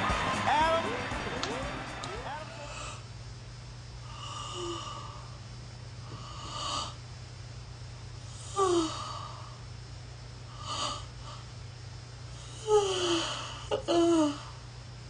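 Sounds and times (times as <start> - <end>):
woman whimpering: 12.6 - 14.5
woman gasping: 12.6 - 14.6.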